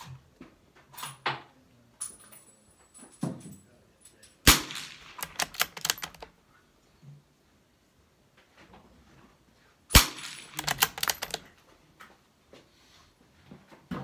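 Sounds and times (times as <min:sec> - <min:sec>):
rifle shot: 0:04.5 - 0:05.7, 0:09.9 - 0:11.2
rifle bolt clicking: 0:05.2 - 0:06.3, 0:10.4 - 0:11.4.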